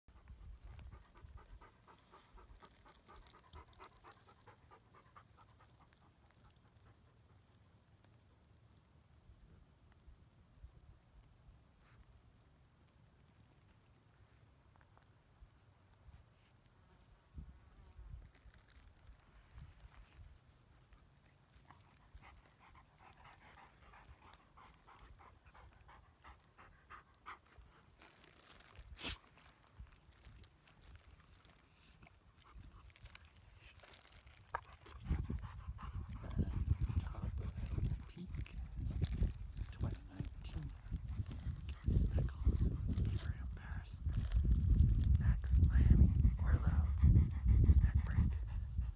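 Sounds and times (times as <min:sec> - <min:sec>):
dog panting: 0:00.1 - 0:07.5, 0:21.6 - 0:27.8, 0:34.5 - 0:42.8, 0:45.9 - 0:48.9
wind rumble on microphone: 0:17.3 - 0:20.4, 0:34.6 - 0:48.9.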